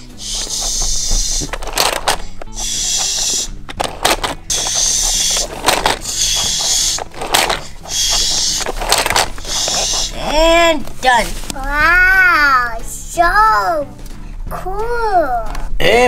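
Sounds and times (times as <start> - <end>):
toy water spray hiss: 0.1 - 1.6, 2.5 - 3.6, 4.5 - 10.2.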